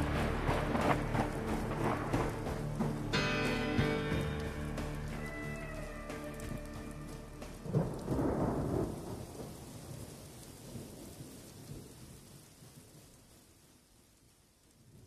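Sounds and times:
music: 0.0s - 8.8s
low rolling rumble: 0.0s - 9.4s.

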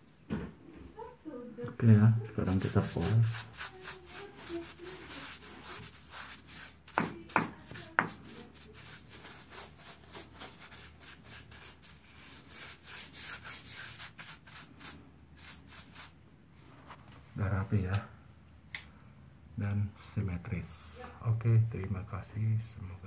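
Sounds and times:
paint brush rubbing strokes: 2.2s - 17.0s.

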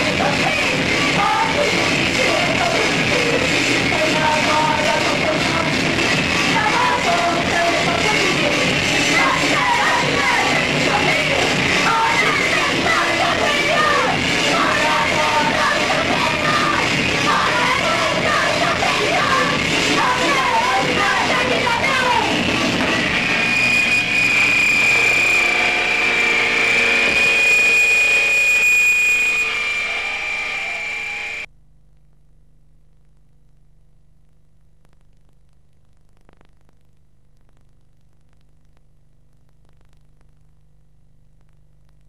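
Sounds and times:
distorted noisy music: 0.0s - 42.0s
high-pitched tone: 6.6s - 31.5s.

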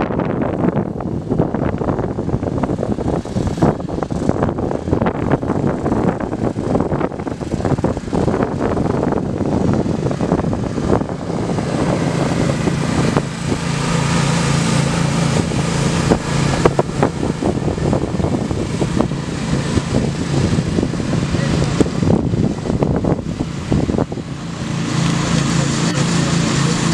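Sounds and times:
lawn mower engines racing: 0.0s - 26.9s.

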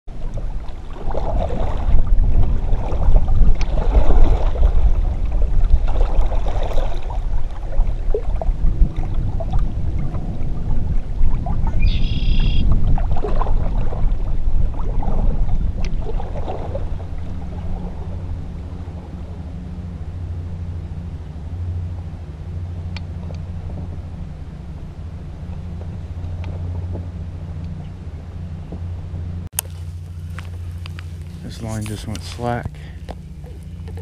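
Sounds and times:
paddle splashing in water: 0.1s - 19.4s, 29.5s - 34.0s
wind rumble on microphone: 0.1s - 34.0s.

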